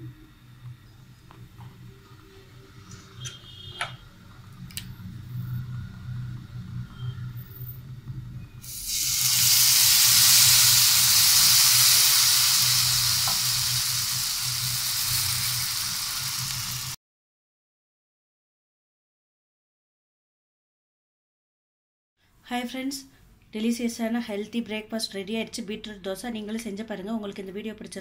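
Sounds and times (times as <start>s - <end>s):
batter sizzling on hot pan: 8.6s - 17.0s.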